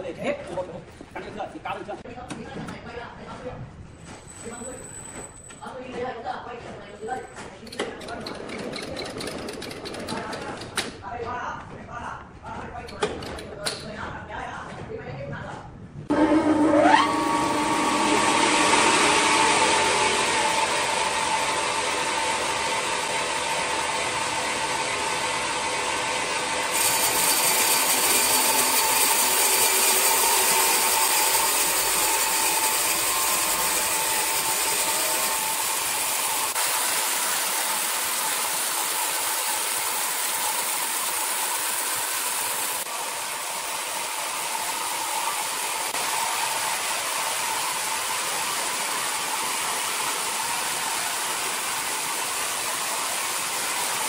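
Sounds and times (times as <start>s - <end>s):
band saw cutting log: 16.1s - 54.0s.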